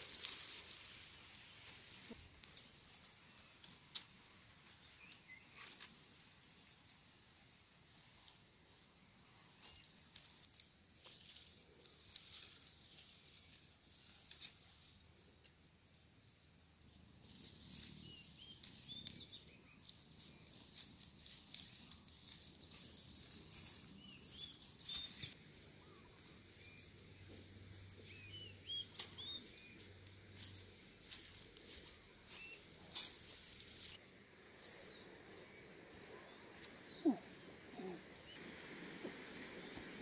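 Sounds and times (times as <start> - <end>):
footsteps through dry grass: 0.0 - 3.9, 9.4 - 34.0
small birds chirping: 0.0 - 7.2, 9.2 - 38.4.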